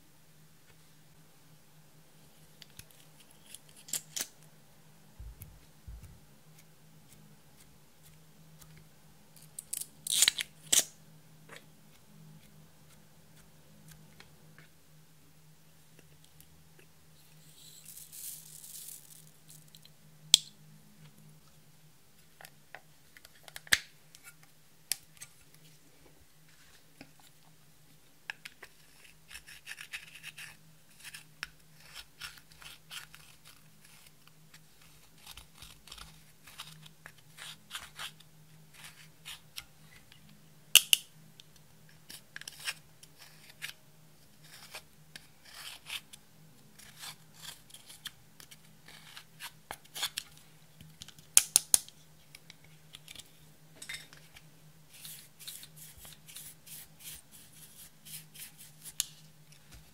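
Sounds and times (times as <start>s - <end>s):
eyeshadow scratching and crackling: 17.3s - 19.9s.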